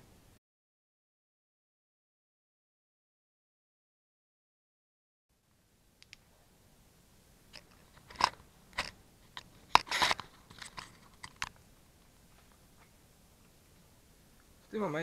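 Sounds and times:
camera handling clicks and scrapes: 7.5s - 11.6s
rustling: 7.5s - 14.8s.

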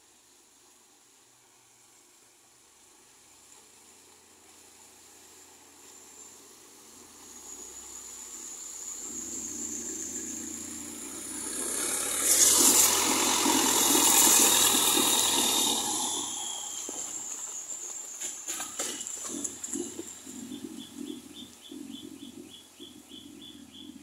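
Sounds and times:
rush of boat wake: 0.0s - 18.5s
boat engine passing: 1.0s - 24.0s.

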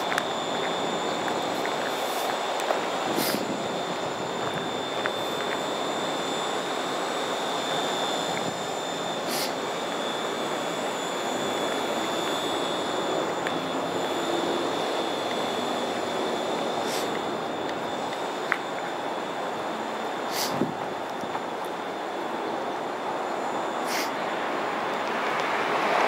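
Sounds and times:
high-pitched whine: 0.0s - 26.0s
industrial machinery drone: 0.0s - 26.0s
brief hisses: 23.9s - 24.1s.

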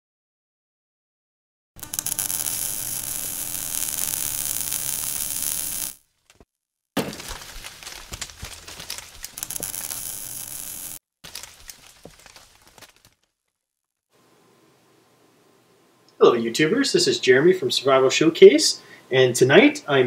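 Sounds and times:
low hum: 1.8s - 6.0s, 9.4s - 11.0s
steady hiss: 1.8s - 6.0s, 9.4s - 11.0s
crackling with clicks: 1.8s - 6.5s, 7.1s - 13.6s.

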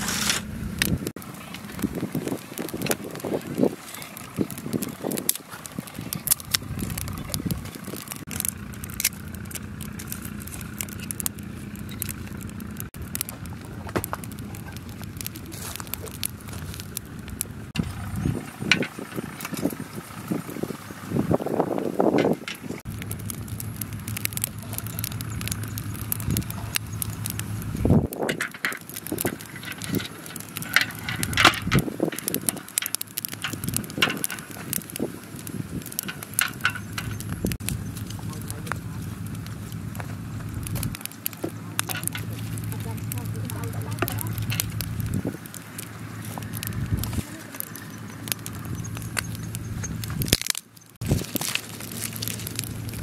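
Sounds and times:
low motor hum: 0.0s - 53.0s
twigs crackling and snapping: 0.0s - 53.0s.

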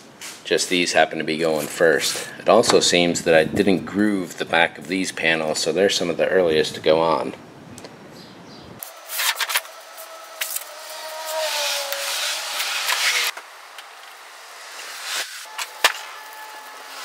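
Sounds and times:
rubbing and scraping: 8.9s - 13.4s.

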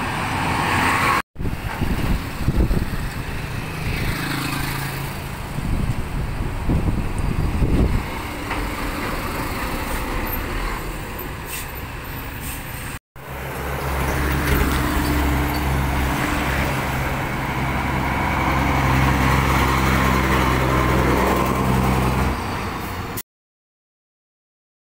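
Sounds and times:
dump truck diesel engine: 0.0s - 23.2s.

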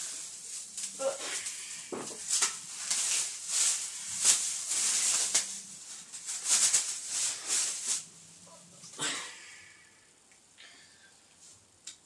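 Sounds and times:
clothes rustling: 0.0s - 9.0s.

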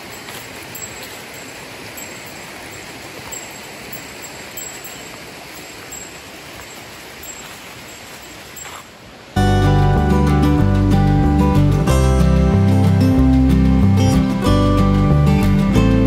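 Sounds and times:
river water rushing: 0.0s - 15.8s.

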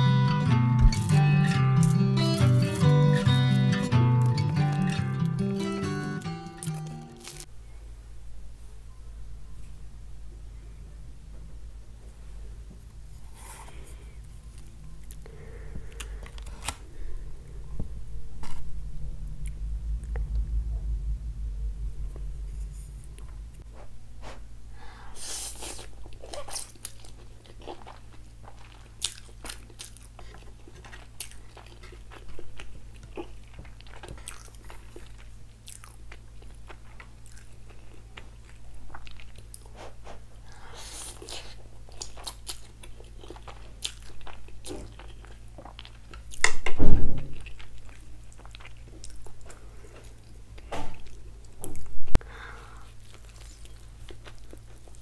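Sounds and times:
chewing and crunching: 0.8s - 7.5s, 13.4s - 17.5s, 25.5s - 46.6s, 47.2s - 52.0s, 52.8s - 55.0s.

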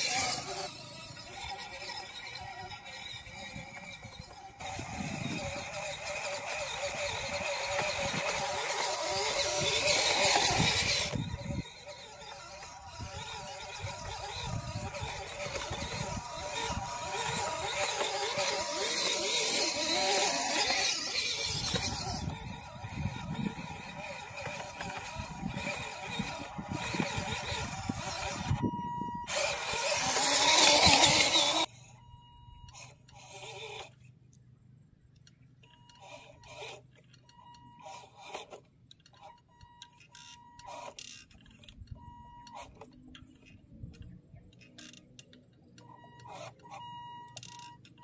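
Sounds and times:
tyres crackling over dirt: 0.0s - 28.6s, 29.3s - 31.7s
electric motor and gears whining: 0.0s - 34.2s, 35.1s - 48.0s.

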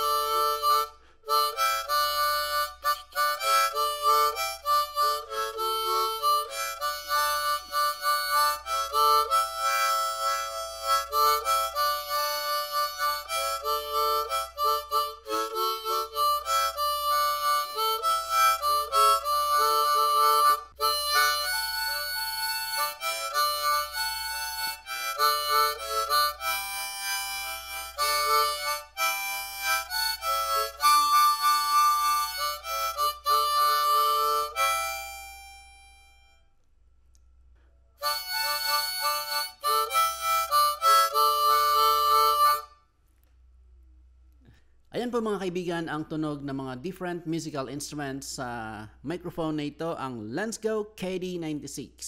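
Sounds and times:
harmonica melody: 0.0s - 36.5s, 38.0s - 42.9s.

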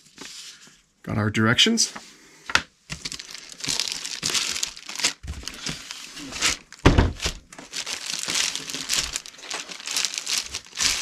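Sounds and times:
plastic wrapping crinkling: 2.9s - 11.0s
box thud: 6.8s - 7.4s.

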